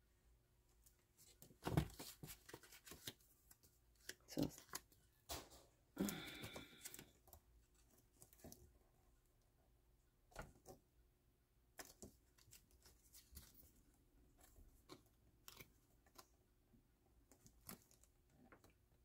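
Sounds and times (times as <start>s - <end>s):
paper rustling and tapping: 1.3s - 7.0s.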